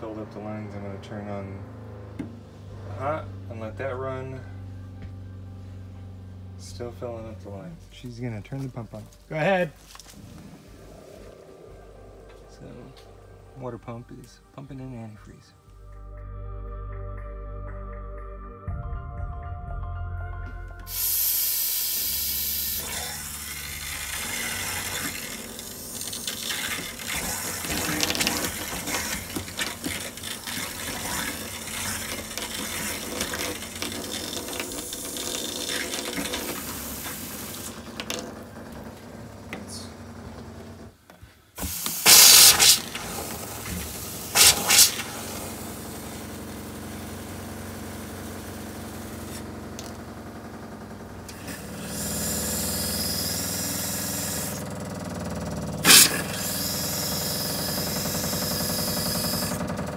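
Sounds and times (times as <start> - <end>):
water pump running: 20.9 - 40.9, 41.6 - 59.9.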